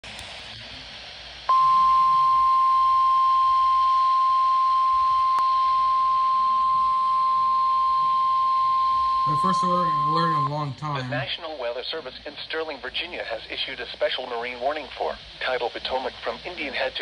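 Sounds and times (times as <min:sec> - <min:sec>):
faint hiss: 0:00.0 - 0:05.9, 0:11.2 - 0:17.0
weather radio alarm tone: 0:01.5 - 0:11.3.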